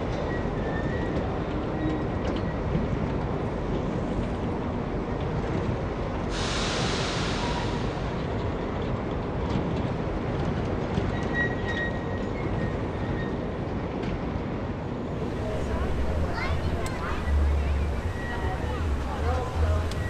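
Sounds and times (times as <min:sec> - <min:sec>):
steam boiler rumble and hiss: 0:03.8 - 0:08.8, 0:15.2 - 0:20.0
steam rushing hiss: 0:06.3 - 0:08.4.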